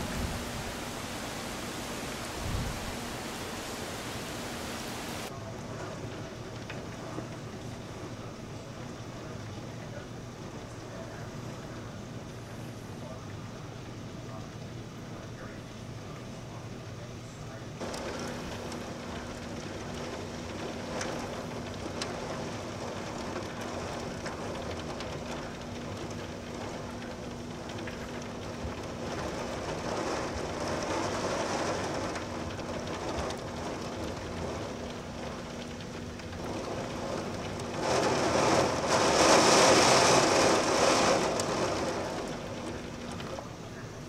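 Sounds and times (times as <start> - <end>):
rush of noise: 0.0 - 5.3
heavy rain: 0.0 - 44.0.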